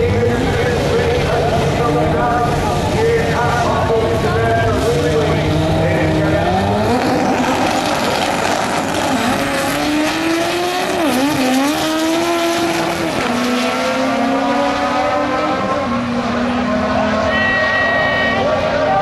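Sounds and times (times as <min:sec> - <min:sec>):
drag racing cars accelerating: 0:00.0 - 0:19.0
engine revving high: 0:04.8 - 0:19.0.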